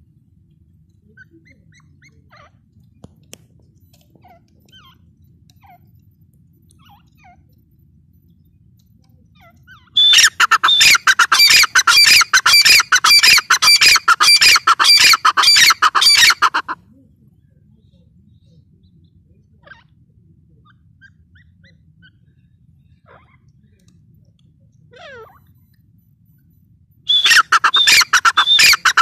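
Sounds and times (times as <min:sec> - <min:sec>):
faint bird chirps: 0:01.0 - 0:02.7, 0:03.8 - 0:16.4, 0:17.0 - 0:29.0
shrill bird calls: 0:09.7 - 0:16.7, 0:27.1 - 0:29.0.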